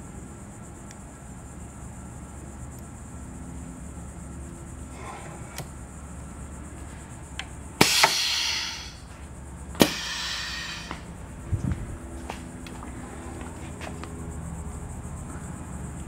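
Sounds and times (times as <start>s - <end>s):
stamping press clack: 7.8s - 9.0s
air hiss: 7.8s - 9.2s, 9.8s - 11.4s.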